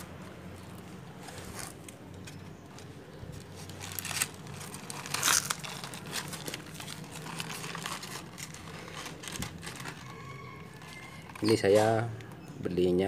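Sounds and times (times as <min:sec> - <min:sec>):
paper bag crinkling: 0:00.0 - 0:12.3.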